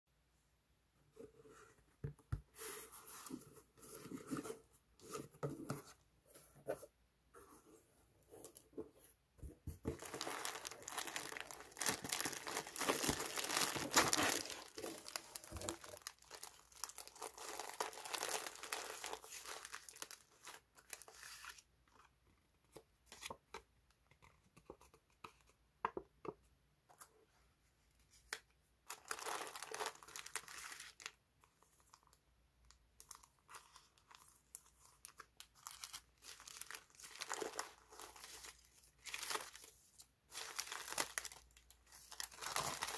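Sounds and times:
paper crinkling and rustling: 0:09.4 - 0:21.6, 0:33.0 - 0:42.9.

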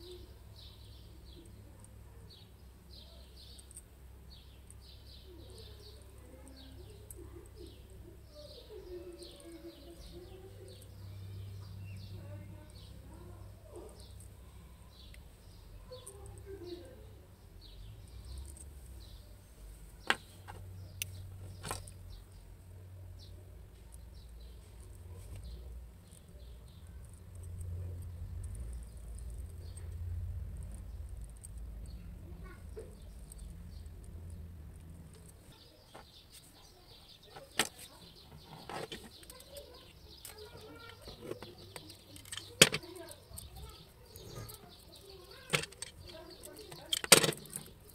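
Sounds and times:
small birds chirping: 0:00.0 - 0:47.9
low steady rumble: 0:24.4 - 0:35.5
pliers and wire clicking on tabletop: 0:38.6 - 0:47.9.

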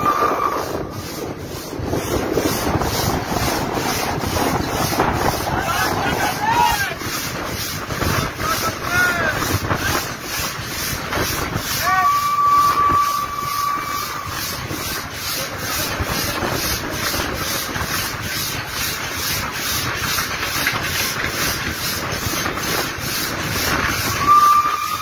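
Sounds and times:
locomotive whistle: 0:00.0 - 0:01.0, 0:11.7 - 0:14.8, 0:24.0 - 0:25.0
steam hissing: 0:00.0 - 0:25.0
steam locomotive running: 0:00.0 - 0:25.0.

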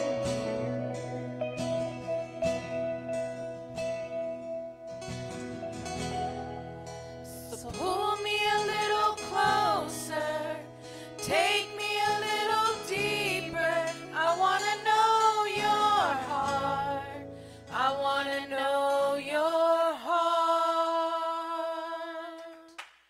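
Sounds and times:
sustained instrumental backing: 0:00.0 - 0:17.6
women singing worship song: 0:06.2 - 0:22.8.

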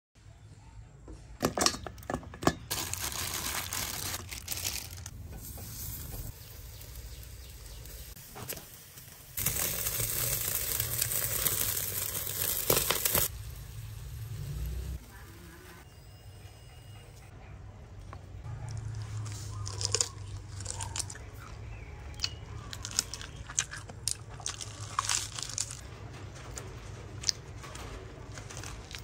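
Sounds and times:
meat sizzling and crackling on grill: 0:02.7 - 0:15.8.

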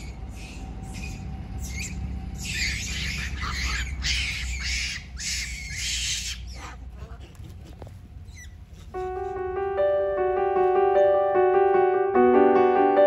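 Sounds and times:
harsh hissy animal calls: 0:00.0 - 0:07.2
steady low rumble: 0:00.0 - 0:11.7.

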